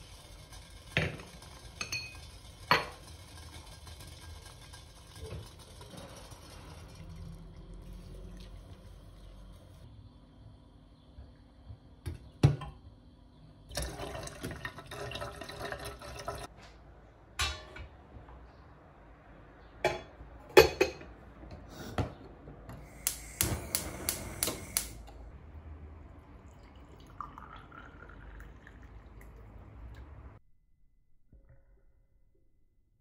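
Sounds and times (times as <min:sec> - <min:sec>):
tap water running into teapot: 0:00.0 - 0:08.8, 0:13.7 - 0:16.5, 0:22.9 - 0:25.0, 0:26.5 - 0:29.4
gas igniter clicking: 0:22.9 - 0:25.1.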